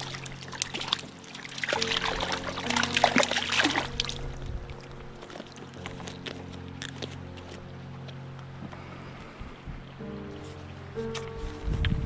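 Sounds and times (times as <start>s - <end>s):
fish splashing in water: 0.0s - 6.4s
soft background music: 0.0s - 12.0s.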